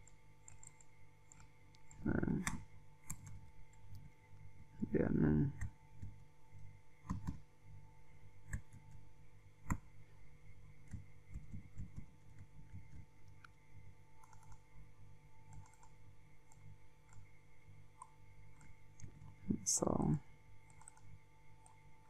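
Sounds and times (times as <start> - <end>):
computer keyboard typing: 0.0 - 3.9, 7.0 - 7.4, 10.8 - 13.1, 14.2 - 14.7, 15.4 - 17.2, 20.6 - 21.8
mouse clicks: 0.0 - 4.0, 7.0 - 7.4, 8.4 - 9.0, 9.6 - 9.8, 14.2 - 14.6, 15.5 - 17.2, 20.7 - 21.8
faint electrical hum: 0.0 - 22.0.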